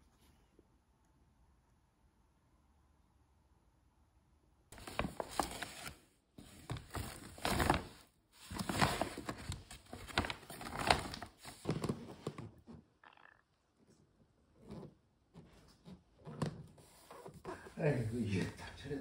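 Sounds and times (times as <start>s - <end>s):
rustling of packaging: 4.7s - 12.7s.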